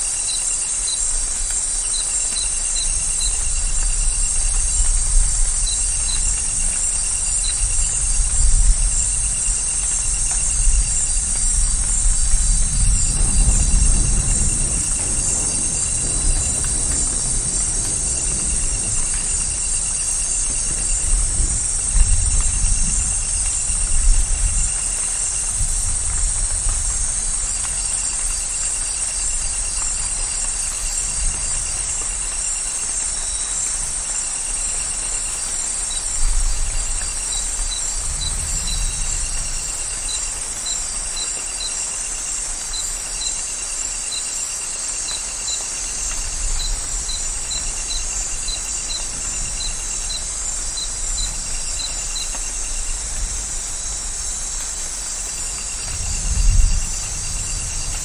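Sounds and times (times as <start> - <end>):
insects chorus: 0.0 - 58.0
rain hissing: 0.0 - 58.0
distant thunder rumbling: 2.7 - 32.4, 46.0 - 58.0.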